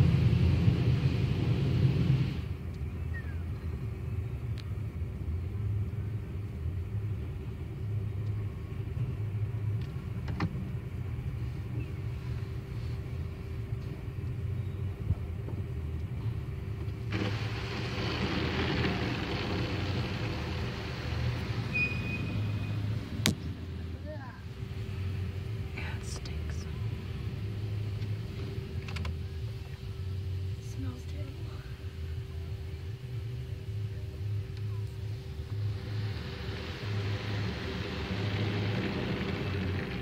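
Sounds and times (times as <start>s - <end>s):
car engine idling: 0.0s - 40.0s
car wash machinery: 0.0s - 40.0s
water spray hissing on car: 17.0s - 23.8s, 34.8s - 40.0s.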